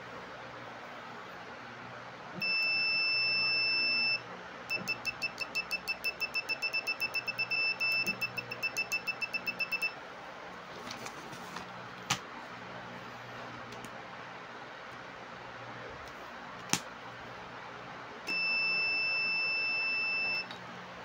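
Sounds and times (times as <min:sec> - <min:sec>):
multimeter continuity beeps: 0:02.4 - 0:10.0, 0:18.3 - 0:20.6.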